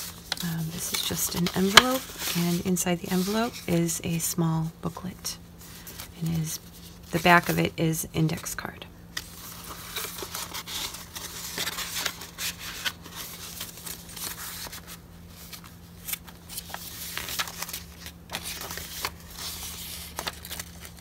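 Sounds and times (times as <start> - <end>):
paper rustling and crinkling: 0.0 - 4.2, 9.2 - 21.0
faint low hum: 0.0 - 21.0.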